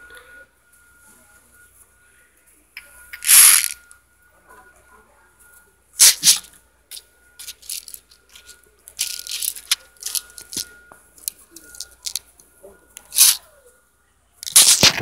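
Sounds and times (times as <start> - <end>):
faint steady high tone: 0.0 - 15.0
phone handling rustles: 7.4 - 10.7.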